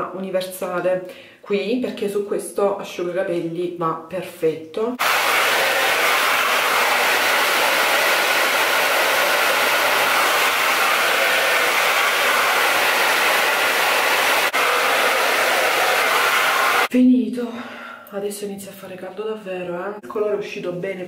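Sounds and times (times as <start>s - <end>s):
hair dryer running: 5.0s - 16.9s.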